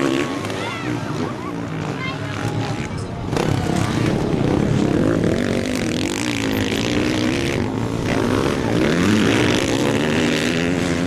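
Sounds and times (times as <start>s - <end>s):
motocross bikes revving past: 0.0s - 11.0s.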